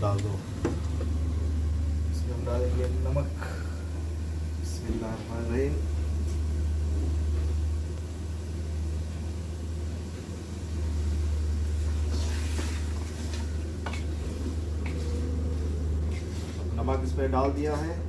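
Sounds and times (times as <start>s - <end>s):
range hood fan humming: 0.0s - 18.0s
spoon stirring in metal pot: 12.5s - 15.0s.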